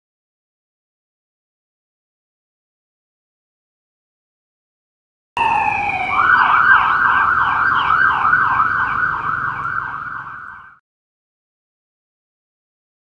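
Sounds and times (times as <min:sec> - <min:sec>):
police siren yelping: 0:05.4 - 0:10.8.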